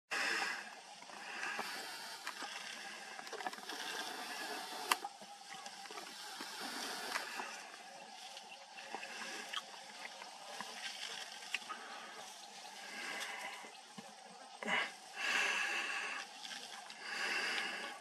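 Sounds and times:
elephants tearing and chewing grass: 1.4 - 13.5.

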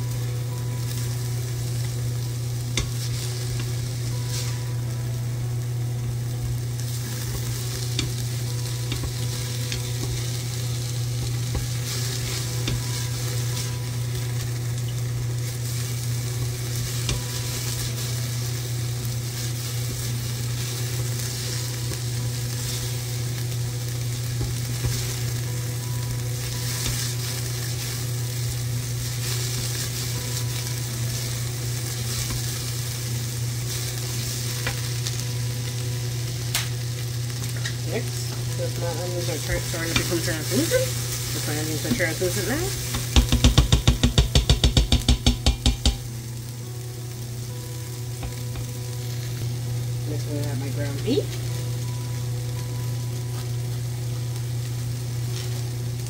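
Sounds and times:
onions sizzling in a pot: 0.0 - 56.0
steady low hum: 0.0 - 56.0.

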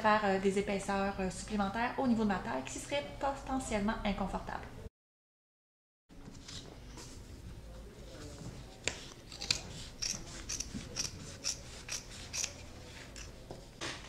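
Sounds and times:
scissors snipping denim: 9.3 - 12.6.

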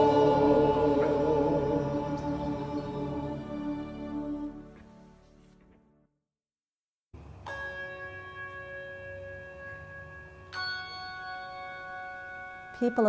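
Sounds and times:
choral music: 0.0 - 5.8
handbell chords ringing: 7.5 - 13.0.

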